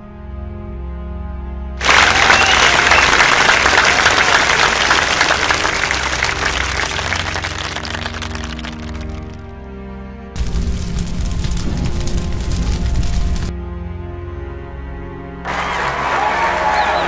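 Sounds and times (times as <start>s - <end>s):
low background music: 0.0s - 17.0s
audience applause: 1.8s - 9.4s, 15.5s - 17.0s.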